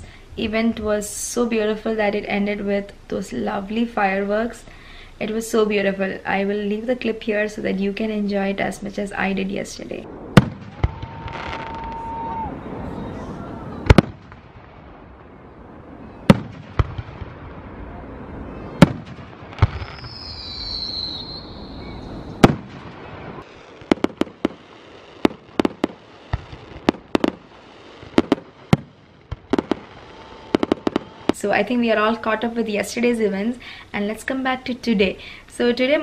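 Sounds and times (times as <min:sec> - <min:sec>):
firework sharp cracks: 0:10.1 - 0:31.4
high whistling tone: 0:19.8 - 0:22.4
firework shells banging: 0:22.4 - 0:31.4.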